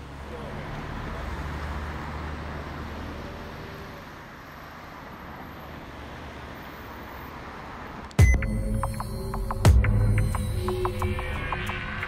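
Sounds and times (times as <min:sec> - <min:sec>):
distant road traffic: 0:00.0 - 0:12.0
song with bass hit: 0:08.2 - 0:12.0.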